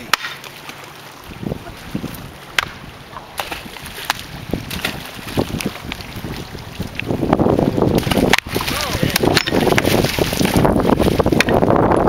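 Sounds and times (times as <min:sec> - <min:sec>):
stones clacking together: 0:08.0 - 0:10.6.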